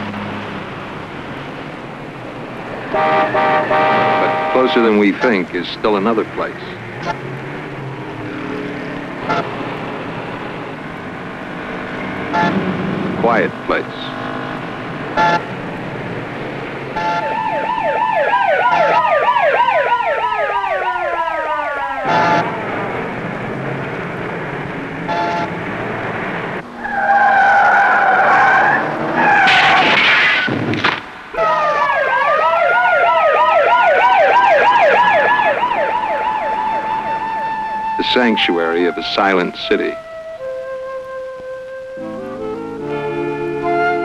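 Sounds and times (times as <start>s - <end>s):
siren warbling: 17.0s - 23.2s, 26.6s - 29.8s, 31.4s - 44.0s.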